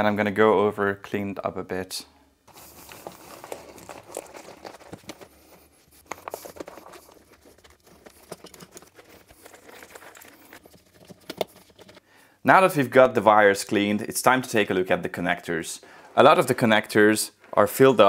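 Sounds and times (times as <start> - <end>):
wires and connectors rattling: 2.5 - 12.0.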